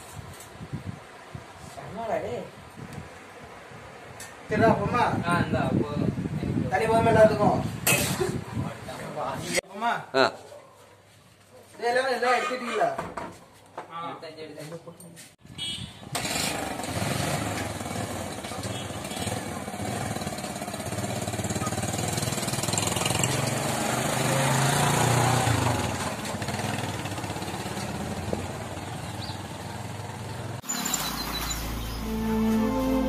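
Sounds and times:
motorcycle engines passing: 16.0s - 33.0s.

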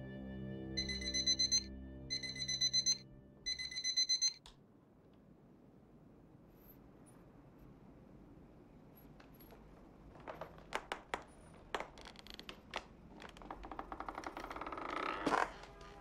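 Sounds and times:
clicks and knocks on wooden floor: 9.2s - 16.0s.

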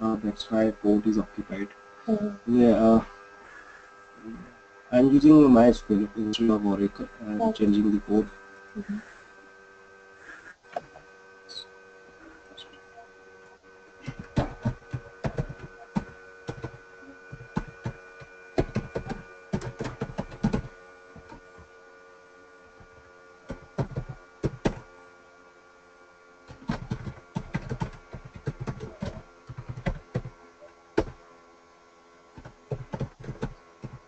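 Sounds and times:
faint steady hum: 0.0s - 34.0s
keyboard typing: 14.0s - 21.6s, 22.8s - 24.8s, 26.5s - 30.4s, 31.0s - 31.2s, 32.4s - 34.0s.

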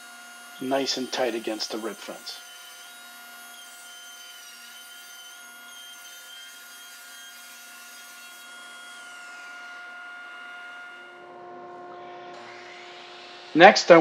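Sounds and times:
table saw ripping a board: 0.0s - 11.2s.

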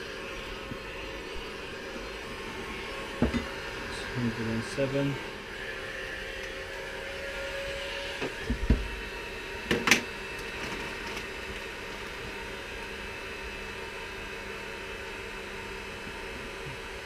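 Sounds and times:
heat gun blowing: 0.0s - 12.5s.

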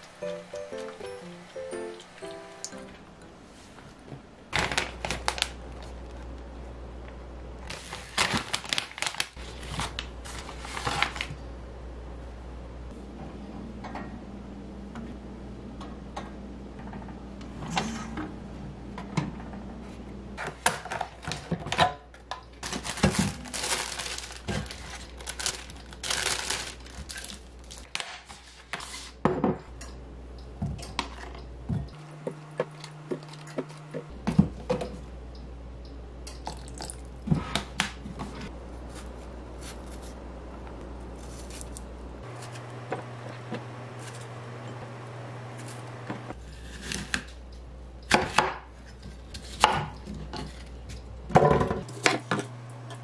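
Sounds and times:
plastic bag crinkling: 4.5s - 6.2s, 7.7s - 11.3s, 22.6s - 27.9s.

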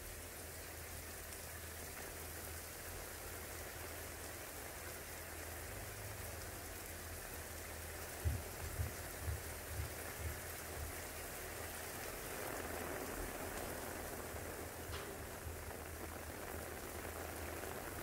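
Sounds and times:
steady rain hiss: 0.0s - 18.0s
soft low thumps: 8.0s - 11.2s.

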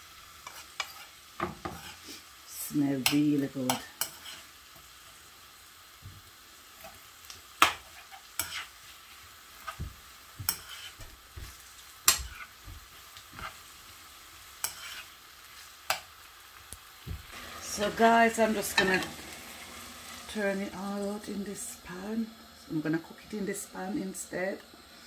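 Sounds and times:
faint sizzle: 0.0s - 25.0s
spoon scraping a pan: 0.4s - 2.4s, 3.0s - 5.0s, 6.8s - 9.8s, 10.4s - 13.8s, 14.4s - 16.2s, 17.4s - 19.9s.

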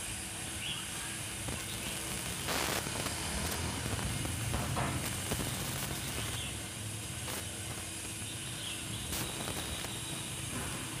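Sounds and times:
steady background hiss: 0.0s - 11.0s
faint bird chirps: 8.2s - 10.4s.

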